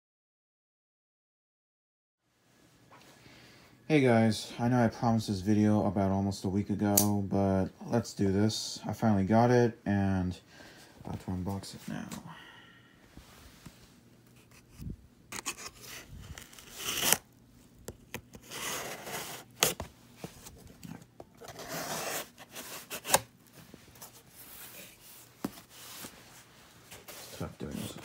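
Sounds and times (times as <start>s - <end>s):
cardboard scraping and tearing: 15.3s - 17.2s, 18.1s - 23.3s.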